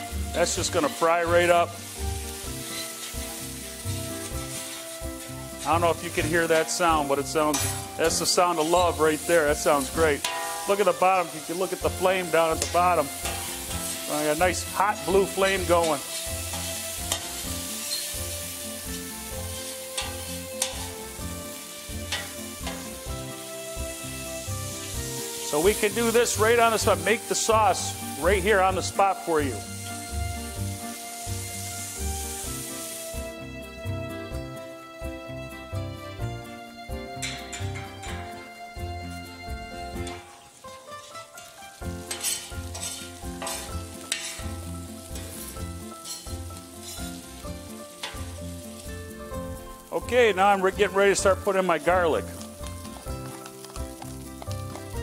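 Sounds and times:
background music: 0.0 - 55.0
oil sizzling in a frying pan: 0.0 - 55.0
metal spoon scraping a pan: 0.6 - 1.6, 2.2 - 23.5, 37.2 - 38.4, 39.9 - 49.3
metal spoon clinking on pan: 10.2 - 10.8, 20.0 - 20.9, 22.1 - 22.8, 42.1 - 44.5, 46.0 - 47.0, 48.0 - 48.3.

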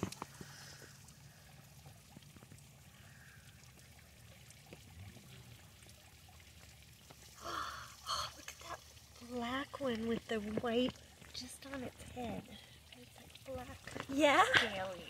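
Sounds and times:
trickle of running water: 0.0 - 15.0
water drips: 0.0 - 15.0.

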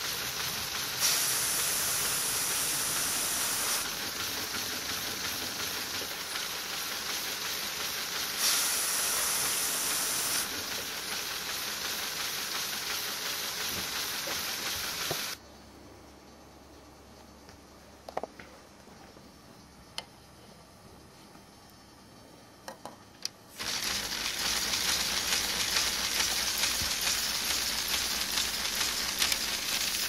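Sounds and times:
compressed air hissing: 0.0 - 4.1, 8.0 - 11.2, 12.4 - 15.4.

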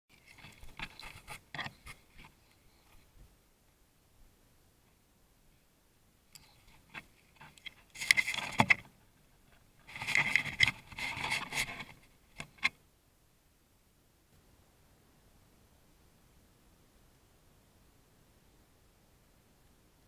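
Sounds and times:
close scraping and rustling: 0.1 - 3.1, 6.4 - 12.8.

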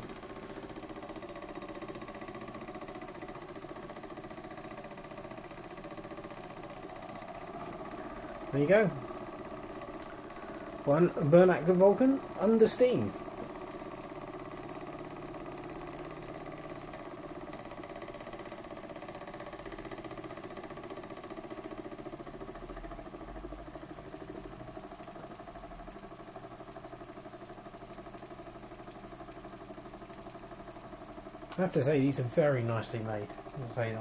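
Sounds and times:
model steam engine beating: 10.8 - 13.4.

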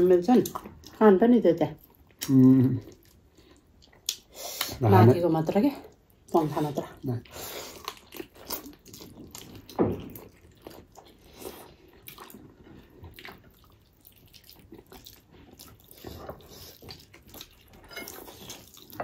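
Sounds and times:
wet chewing and lip-smacking: 0.0 - 1.0, 1.6 - 4.8, 5.8 - 19.0.

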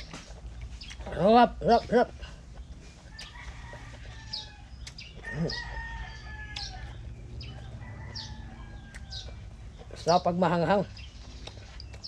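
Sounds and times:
small bird chirping: 0.0 - 1.9, 2.5 - 12.0
rooster crowing: 3.1 - 9.4.

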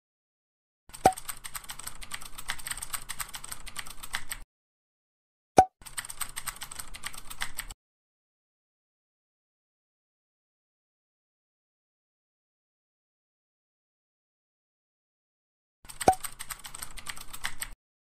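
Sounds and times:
keyboard typing clicks: 0.9 - 4.4, 5.8 - 7.8, 15.9 - 17.8.

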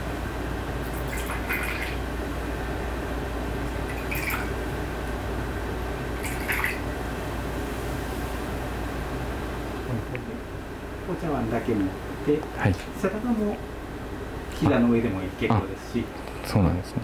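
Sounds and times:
water pouring into teacups: 0.9 - 2.0, 3.9 - 4.5, 6.2 - 6.8.

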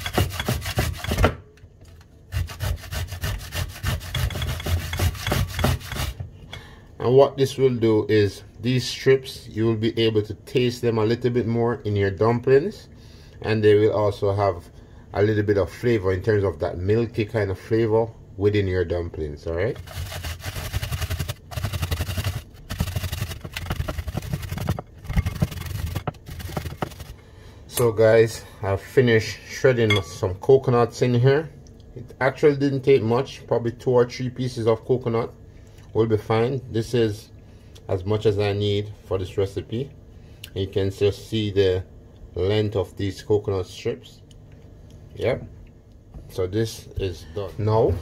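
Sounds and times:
coconut grating on metal grater: 0.0 - 1.4, 2.3 - 6.2, 19.7 - 27.2.

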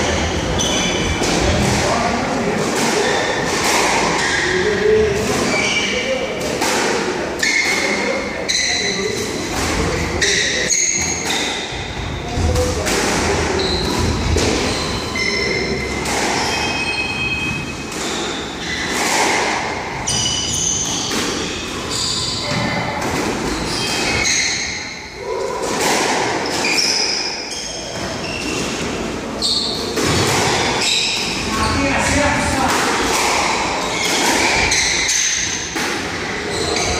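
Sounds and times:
shoes squeaking on wooden floor: 13.5 - 19.4.

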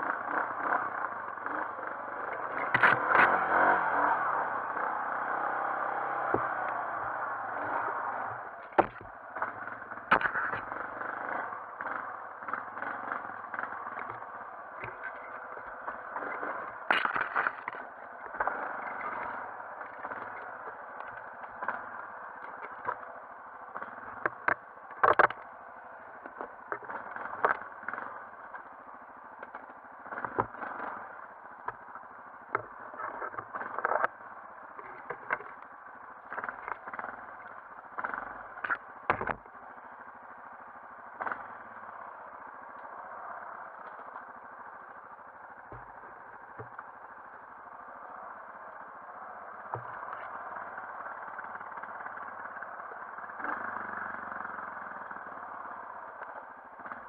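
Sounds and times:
atv engine running: 0.0 - 57.0
branches knocking on vehicle: 6.1 - 9.5, 10.1 - 10.7, 13.5 - 23.2, 23.8 - 25.6, 38.0 - 39.5.

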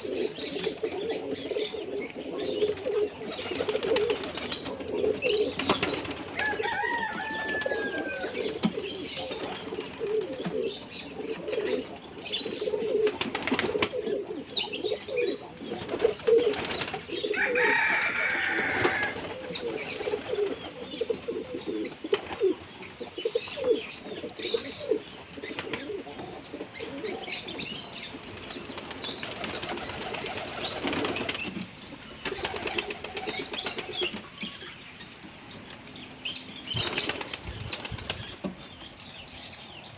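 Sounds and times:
pigeons cooing: 0.0 - 34.8
wings flapping: 2.7 - 10.6, 13.0 - 14.0, 15.8 - 17.2, 17.8 - 20.6, 22.0 - 22.6, 25.4 - 26.0, 28.2 - 34.4, 36.7 - 38.9.

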